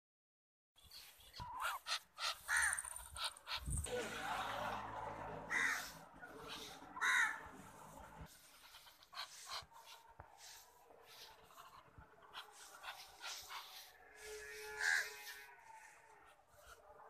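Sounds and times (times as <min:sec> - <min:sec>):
harsh raspy bird calls: 0:01.2 - 0:03.7, 0:05.4 - 0:10.0, 0:11.1 - 0:16.0.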